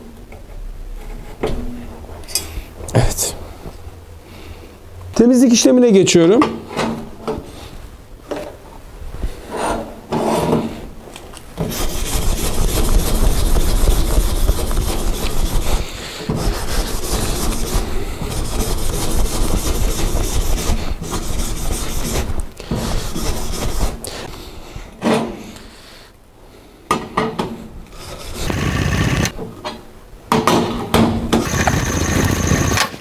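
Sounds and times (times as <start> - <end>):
wire brush scrubbing steel: 11.7 - 24.0.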